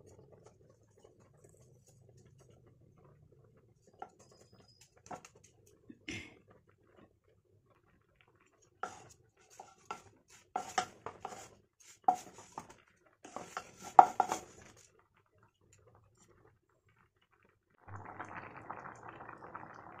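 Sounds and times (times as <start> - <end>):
wooden spatula scraping frying pan: 8.8 - 14.8.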